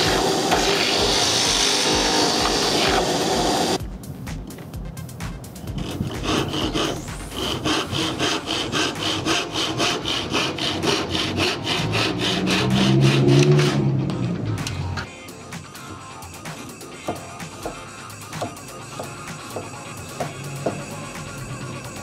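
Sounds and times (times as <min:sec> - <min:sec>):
hand saw cutting wood: 0:00.0 - 0:03.8, 0:05.6 - 0:14.0.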